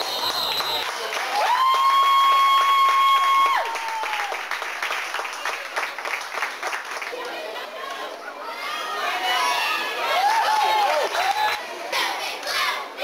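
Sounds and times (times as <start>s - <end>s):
spectators cheering: 0.0s - 5.8s, 8.6s - 11.6s
people clapping: 0.0s - 8.2s, 10.2s - 12.7s.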